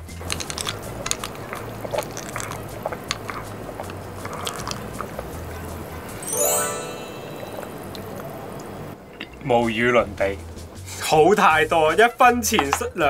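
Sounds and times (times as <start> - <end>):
soda water fizzing: 0.0 - 9.0.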